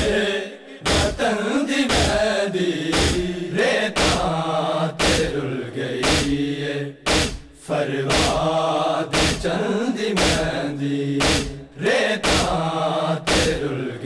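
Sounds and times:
wailing chant: 0.0 - 14.0
crowd chest-beating slaps: 0.8 - 5.4, 6.0 - 9.6, 10.2 - 10.6, 11.2 - 13.7.

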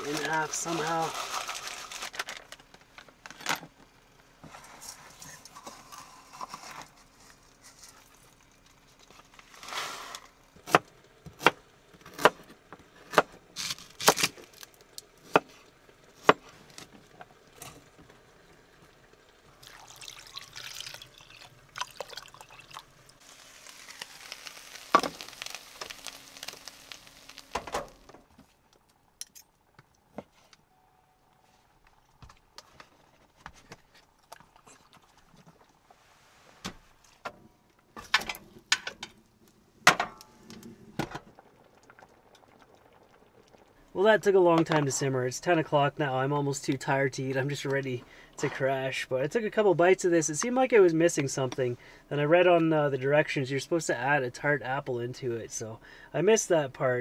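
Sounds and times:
rustling and scraping: 0.0 - 3.7, 4.4 - 10.4, 35.2 - 39.2
faint steady hum: 0.0 - 57.0.

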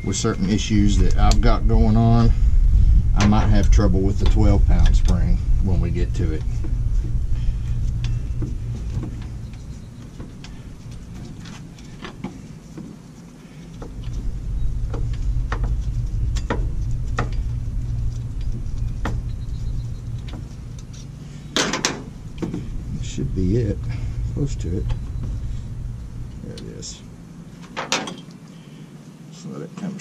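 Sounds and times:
low rumble: 0.0 - 28.4
metal clatter: 13.7 - 28.4.

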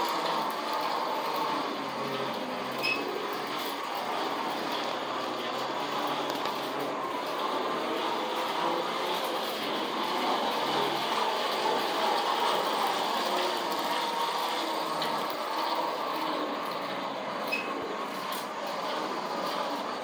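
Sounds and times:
toy trolley whirring on rails: 0.0 - 20.0.

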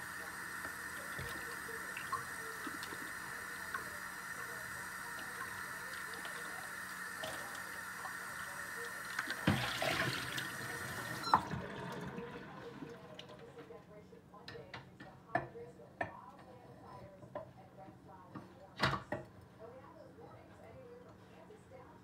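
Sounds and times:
tap running into a sink: 0.5 - 4.0, 9.0 - 12.1.

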